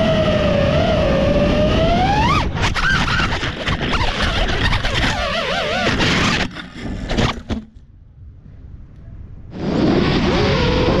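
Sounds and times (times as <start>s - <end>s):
drone motor whine: 0.0s - 6.5s.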